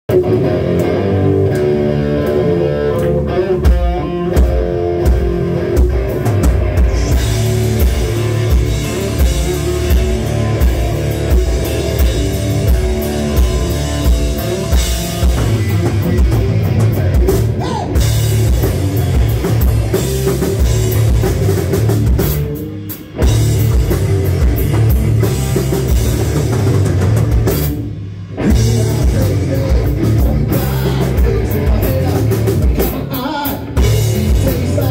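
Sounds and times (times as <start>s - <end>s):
bass guitar: 0.0s - 34.9s
drum kit beat: 0.1s - 34.9s
electric guitars: 0.1s - 34.9s.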